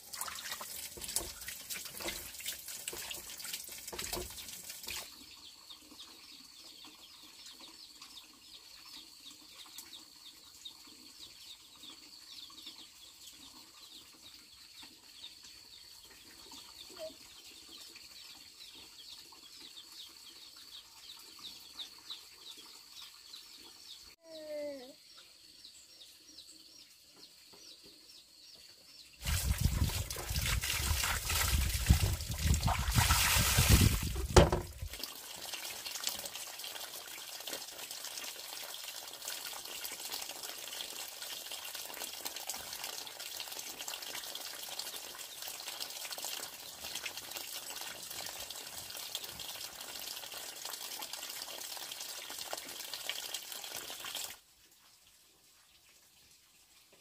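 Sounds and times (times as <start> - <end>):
water splashing: 0.0 - 5.1, 29.2 - 44.6
water trickling: 0.0 - 24.2, 29.2 - 57.0.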